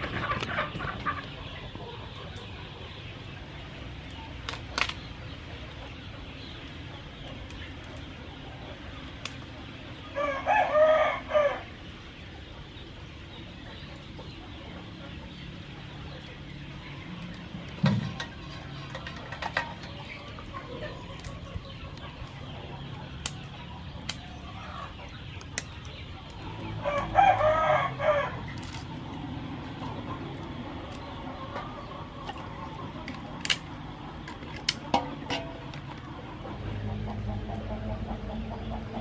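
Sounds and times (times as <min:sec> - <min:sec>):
rooster crowing: 0:10.1 - 0:11.7, 0:26.8 - 0:28.5
crab pieces knocking in metal basin: 0:34.3 - 0:35.8.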